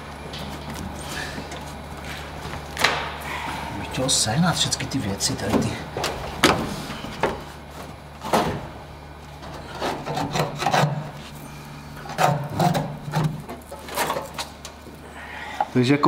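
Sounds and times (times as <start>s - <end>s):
steady low hum: 0.0s - 16.0s
tools knocking and scraping: 12.0s - 14.6s.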